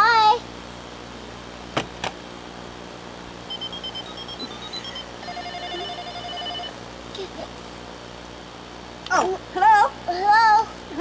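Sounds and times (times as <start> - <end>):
pulsing electronic ring: 3.5 - 6.8
toy phone beeping tune: 3.5 - 6.8.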